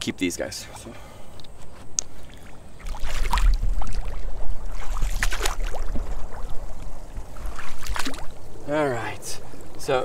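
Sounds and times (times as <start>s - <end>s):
water sloshing from wading: 1.5s - 8.7s.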